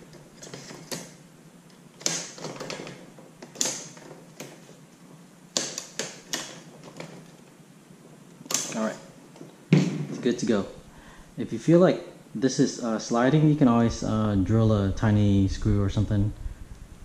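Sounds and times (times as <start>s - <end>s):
sharp clicks and knocks: 0.0s - 4.8s, 5.5s - 7.4s.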